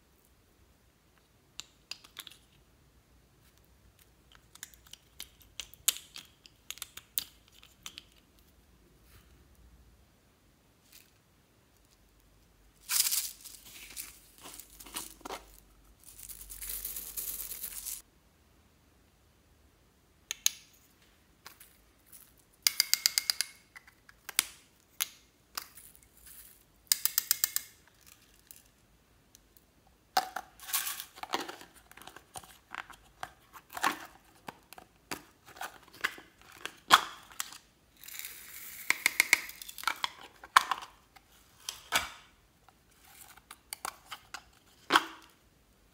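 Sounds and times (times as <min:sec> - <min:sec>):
beads pouring into glass dish: 0:12.8 - 0:18.0
sequins and beads rattling: 0:12.8 - 0:18.0.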